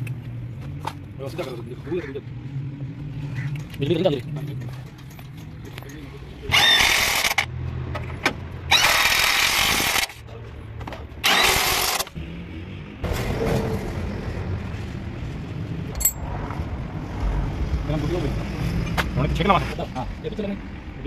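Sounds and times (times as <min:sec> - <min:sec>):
impact wrench bursts: 0:06.5 - 0:07.5, 0:08.7 - 0:10.2, 0:11.2 - 0:12.1.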